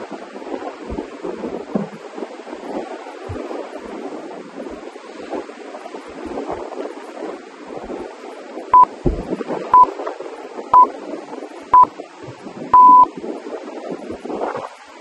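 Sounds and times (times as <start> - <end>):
timer beeping: 12.8 - 13.1.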